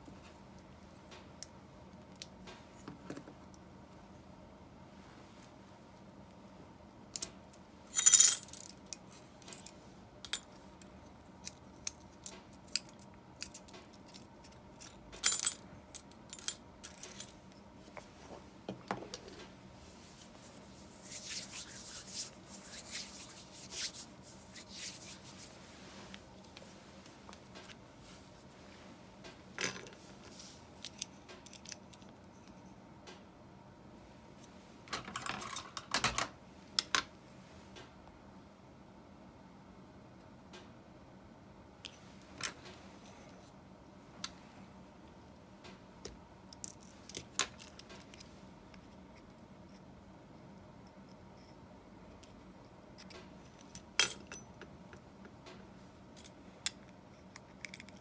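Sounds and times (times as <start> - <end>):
small metal parts clinking: 7.9 - 10.5, 11.4 - 17.4.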